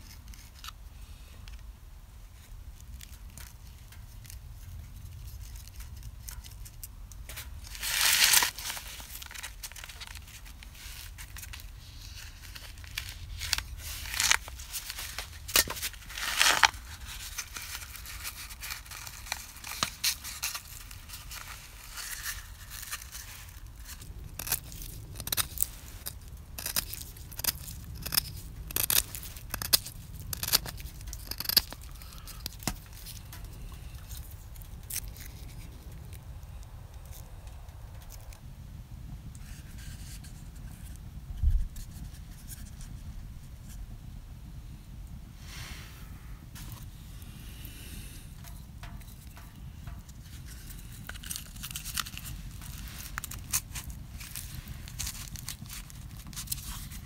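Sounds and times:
bark tearing scrapes: 5.2s - 36.2s, 50.3s - 57.0s
knife scraping bark: 11.5s - 34.2s.

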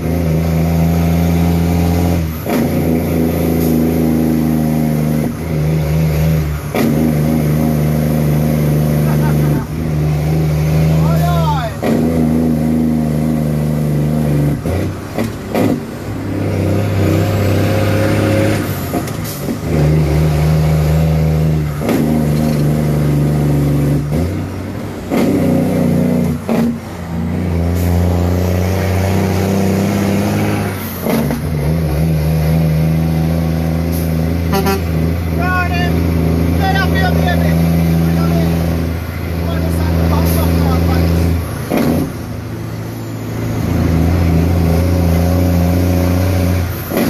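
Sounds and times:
truck engine shifting gears: 0.0s - 47.0s.

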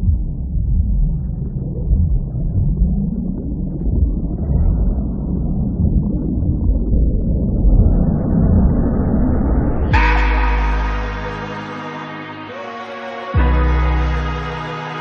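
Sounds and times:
muffled film soundtrack rumble: 0.0s - 11.5s.

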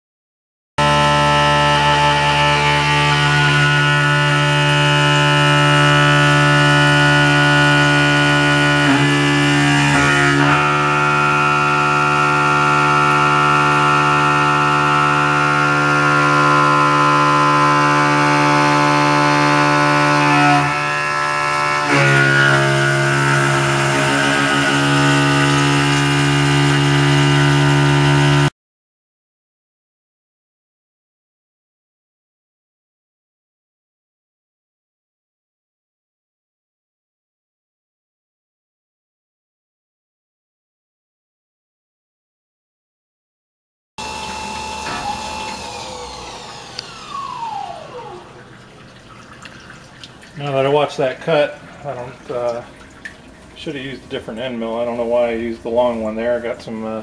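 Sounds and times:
mill cutting metal whine: 0.8s - 28.5s, 44.0s - 48.9s.

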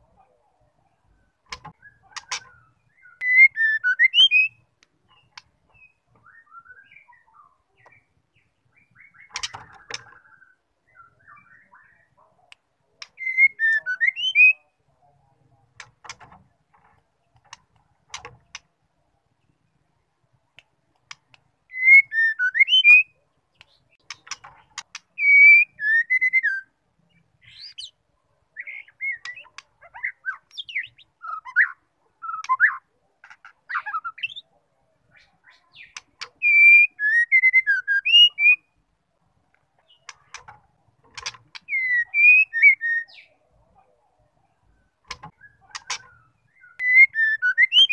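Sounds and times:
bird singing whistled phrases: 2.9s - 4.6s, 5.8s - 7.5s, 13.2s - 14.7s, 21.7s - 23.2s, 25.2s - 26.7s, 28.6s - 32.8s, 35.8s - 38.7s, 41.6s - 43.3s, 45.4s - 47.9s.

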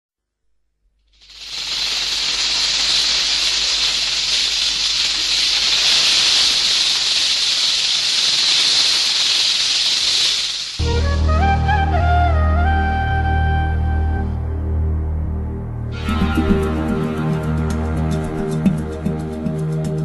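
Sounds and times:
steady white noise hiss: 1.0s - 11.0s.

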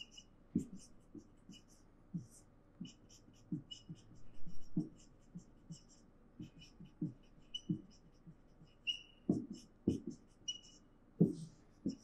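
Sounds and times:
marker squeaking on whiteboard: 0.0s - 12.0s
marker knocking on whiteboard: 9.3s - 10.2s, 11.2s - 12.0s.

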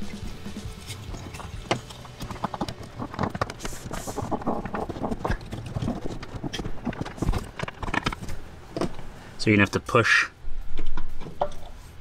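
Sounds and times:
plastic connectors knocking and clicking: 1.6s - 9.0s.

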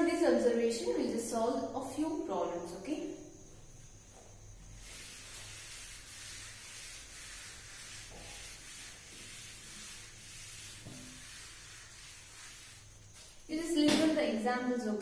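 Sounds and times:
duster wiping a chalkboard: 3.8s - 14.2s.

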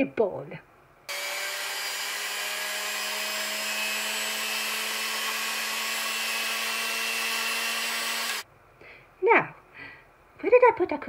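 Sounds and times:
electric hand mixer running: 1.1s - 8.4s.

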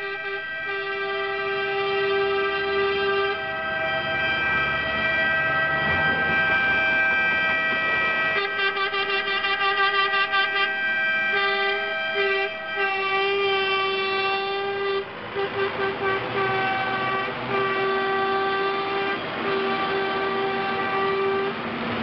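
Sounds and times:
vehicle air horns blowing: 0.0s - 21.6s
tractor diesel engines: 0.0s - 22.0s.

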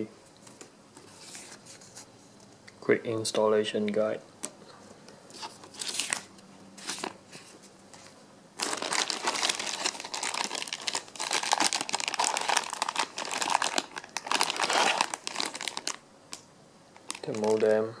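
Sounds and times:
plastic bag crinkling: 8.6s - 16.0s, 17.0s - 17.8s.

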